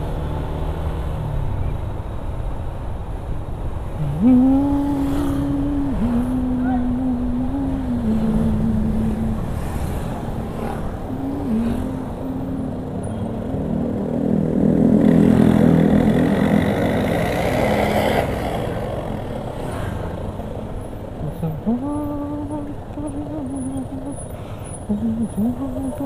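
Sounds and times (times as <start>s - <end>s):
wind and road noise: 0.0s - 26.0s.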